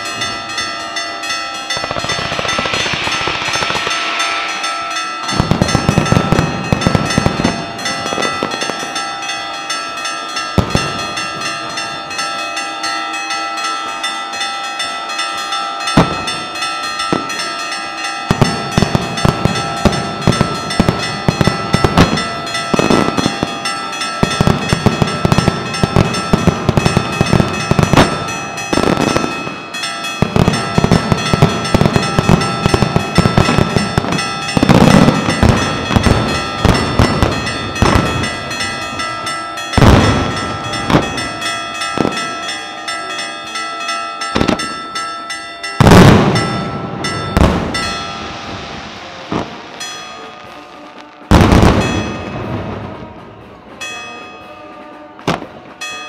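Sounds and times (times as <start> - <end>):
church bells ringing: 0.0 - 56.0
firework booms: 1.7 - 8.8, 39.8 - 41.3, 45.8 - 49.8, 51.3 - 52.9
firecrackers crackling: 1.7 - 9.4, 15.9 - 42.7, 45.8 - 53.3.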